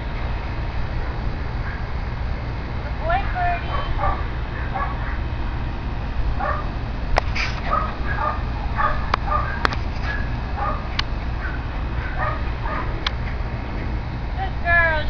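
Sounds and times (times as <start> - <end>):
small dog yapping: 7.7 - 10.8.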